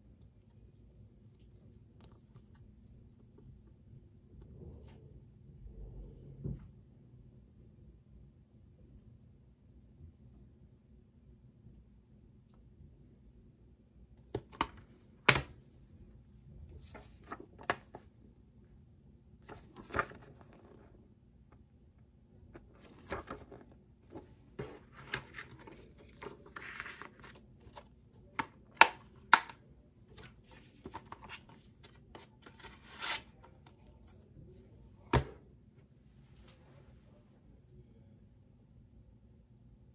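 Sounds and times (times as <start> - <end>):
paper rustling: 19.4 - 20.8, 22.6 - 28.5, 30.1 - 34.2
plastic case clicks and snaps: 28.4 - 29.6.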